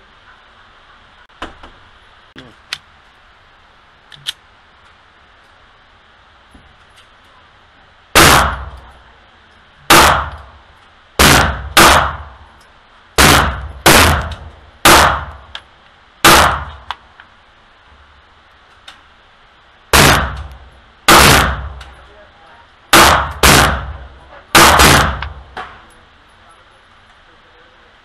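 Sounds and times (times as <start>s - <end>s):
pistol shots with ringing echo: 8.2s - 8.9s, 9.9s - 10.5s, 11.2s - 12.4s, 13.2s - 15.5s, 16.2s - 16.9s, 20.0s - 20.5s, 21.1s - 22.0s, 22.9s - 25.8s.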